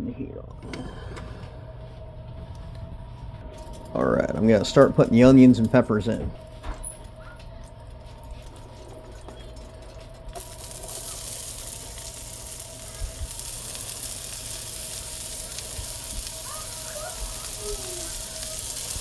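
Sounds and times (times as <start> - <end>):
onions sizzling in a frying pan: 10.3 - 19.0.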